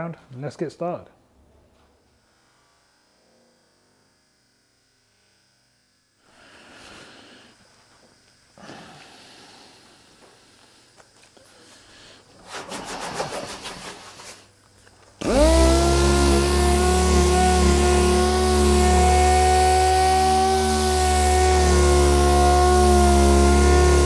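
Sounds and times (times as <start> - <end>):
sander pad rasping on panel: 11.6 - 14.6, 15.2 - 24.0
sander motor whine: 14.8 - 24.0.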